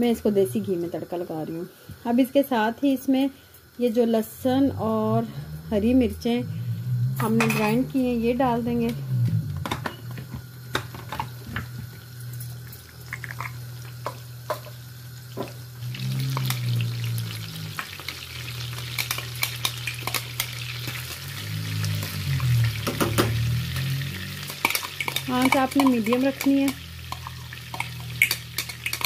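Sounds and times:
dense crackling sizzle: 0:00.0 - 0:29.0
low steady hum: 0:00.0 - 0:29.0
ghee frying with pops: 0:08.6 - 0:29.0.

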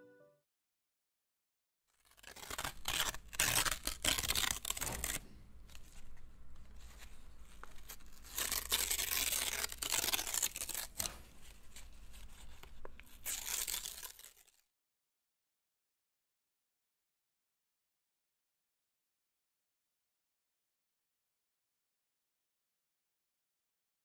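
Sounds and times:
paper being torn and crumpled: 0:01.9 - 0:14.7.

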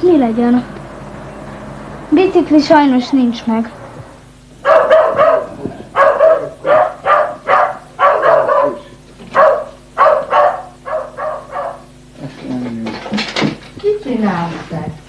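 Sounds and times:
dog barking: 0:04.6 - 0:12.0.

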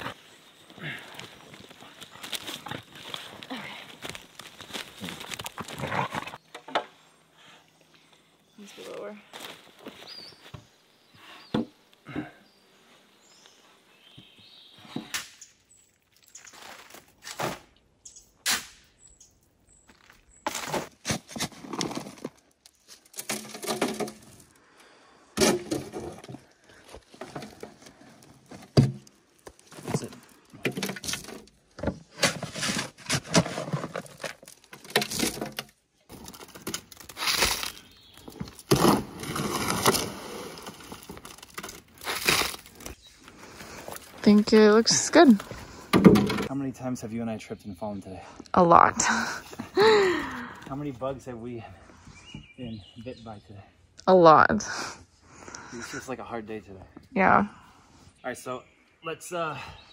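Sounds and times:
shovel scraping and thumping: 0:16.6 - 0:17.8, 0:20.4 - 0:24.5, 0:25.4 - 0:26.5, 0:29.7 - 0:43.0.

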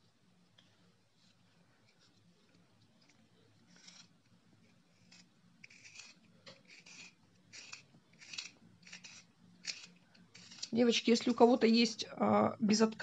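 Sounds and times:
pencil sharpener scraping: 0:03.7 - 0:04.1, 0:04.9 - 0:11.5.

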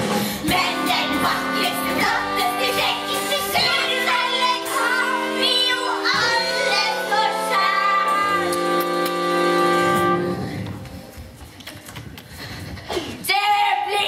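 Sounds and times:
musical accompaniment: 0:00.0 - 0:11.2
children singing: 0:00.5 - 0:08.6.

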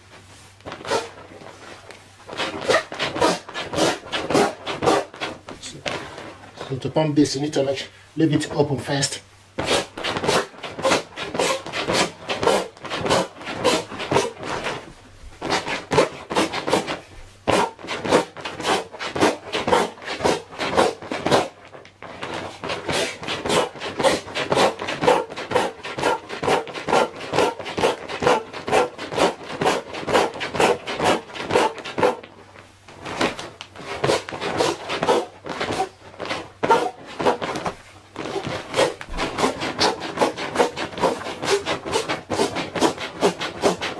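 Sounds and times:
foot pump squashing and crinkling: 0:09.6 - 0:43.9.

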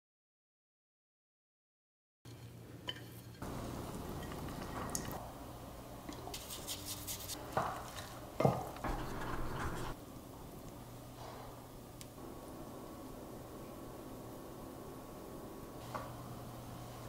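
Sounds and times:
spoon scraping ceramic bowl: 0:09.0 - 0:10.0.

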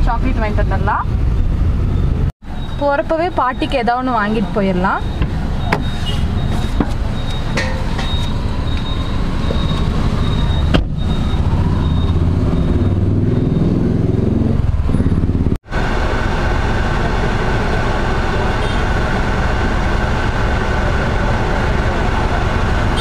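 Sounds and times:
traffic and engine rumble: 0:00.0 - 0:23.0.

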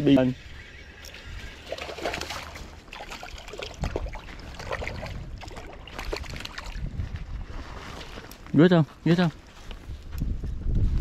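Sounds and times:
creek water running: 0:01.5 - 0:06.9
small splashes and clicks: 0:01.7 - 0:06.8.

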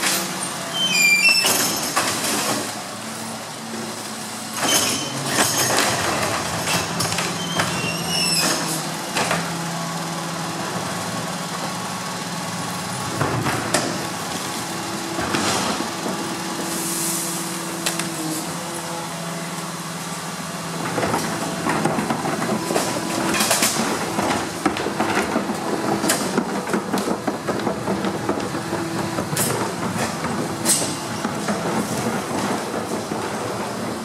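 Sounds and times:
truck engine and hydraulics humming: 0:00.0 - 0:34.0
compactor clattering: 0:20.7 - 0:34.0.

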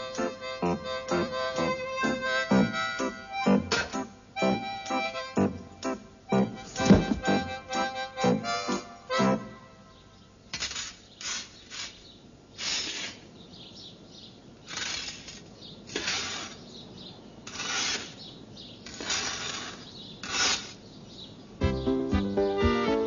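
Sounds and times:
scythe swishing over hard floor: 0:06.7 - 0:07.5.

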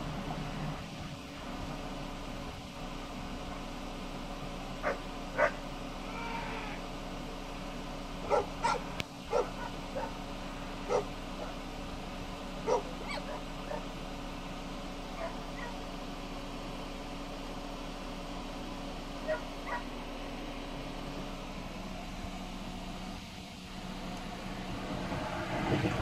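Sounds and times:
steady low hum: 0:00.0 - 0:26.0
dog barking: 0:04.8 - 0:05.6, 0:08.3 - 0:10.1, 0:10.9 - 0:11.5, 0:12.7 - 0:13.8, 0:15.2 - 0:15.8, 0:19.2 - 0:19.9.

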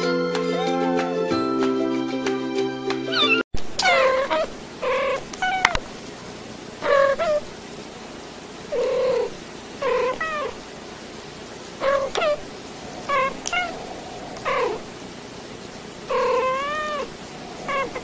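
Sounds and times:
cats meowing: 0:03.8 - 0:05.8, 0:06.8 - 0:07.4, 0:08.7 - 0:10.6, 0:11.8 - 0:14.9, 0:16.1 - 0:18.0.

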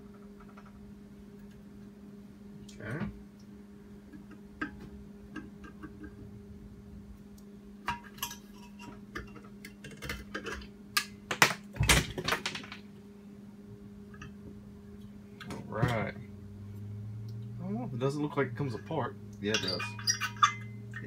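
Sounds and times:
steady low hum: 0:00.0 - 0:21.0
hand tools clinking on metal: 0:19.4 - 0:21.0.

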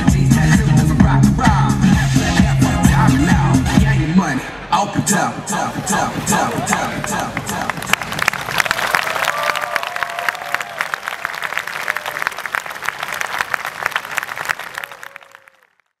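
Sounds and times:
audience applauding: 0:05.8 - 0:16.0.

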